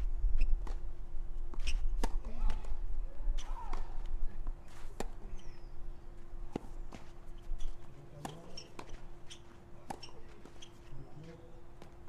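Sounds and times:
racket hitting tennis ball: 1.6s - 2.7s, 8.2s - 9.0s, 9.8s - 10.7s
footsteps on clay: 6.1s - 12.0s.

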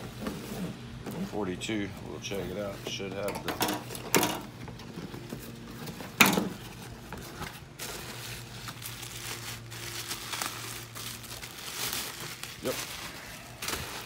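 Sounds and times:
packing paper crinkling: 4.8s - 14.0s.

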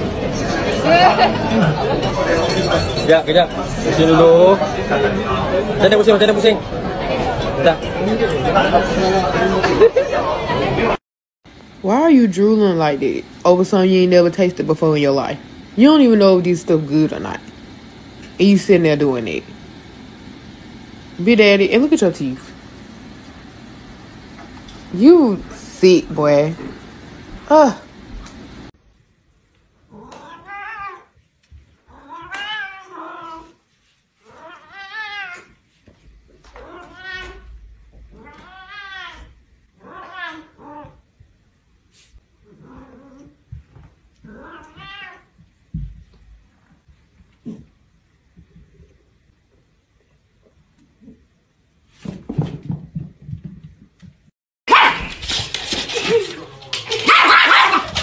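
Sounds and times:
cat meowing: 29.9s - 31.1s, 31.9s - 33.6s, 34.2s - 35.5s, 36.6s - 41.0s, 44.2s - 45.3s
dogs barking: 54.7s - 55.1s, 56.9s - 58.0s.

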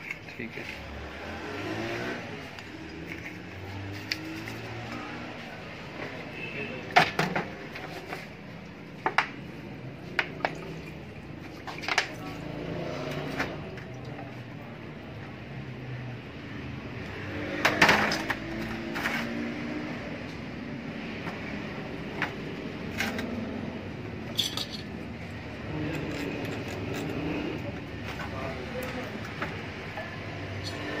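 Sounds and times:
metal parts clinking and knocking: 24.3s - 25.0s.

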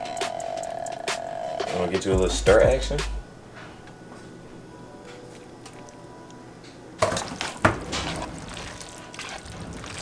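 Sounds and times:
pasta scraping and squishing: 7.2s - 10.0s.

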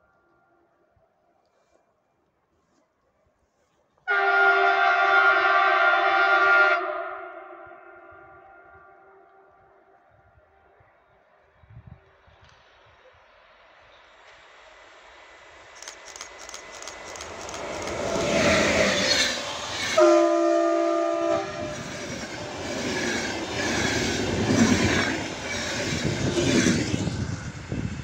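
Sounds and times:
train horn blast: 4.1s - 9.9s, 18.4s - 22.2s.

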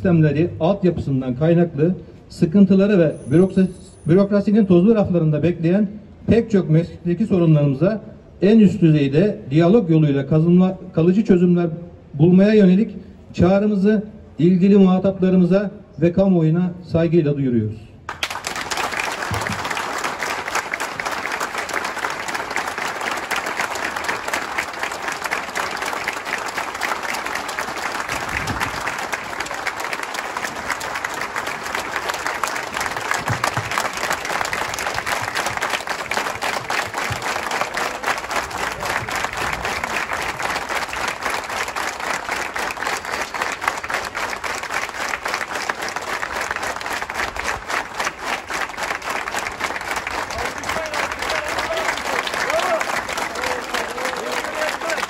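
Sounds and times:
crowd applauding: 18.1s - 55.0s.

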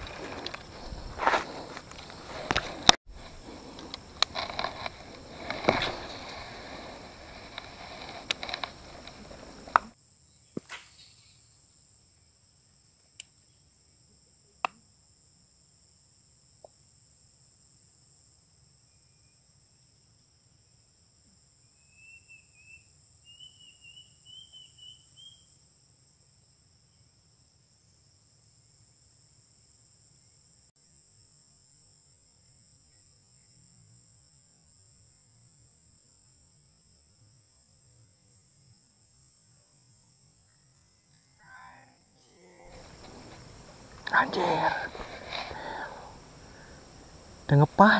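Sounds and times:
grass rustling: 0.0s - 10.0s, 10.6s - 11.7s, 42.2s - 47.9s
insects droning: 0.0s - 47.9s
chirps: 21.7s - 25.6s.

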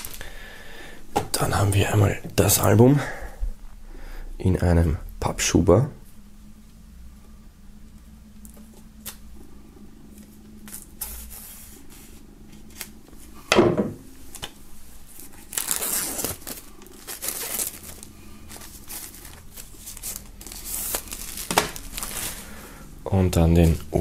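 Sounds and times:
plastic wrap crinkling and tearing: 0.0s - 0.4s, 15.1s - 22.7s.

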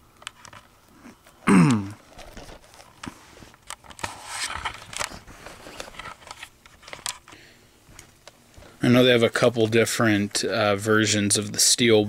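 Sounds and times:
plastic wrap crinkling: 2.0s - 7.4s.

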